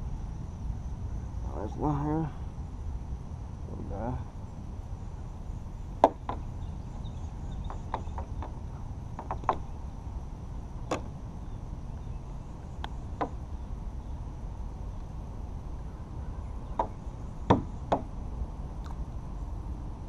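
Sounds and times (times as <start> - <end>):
steady low rumble: 0.0 - 20.0
sharp knock: 6.0 - 6.4.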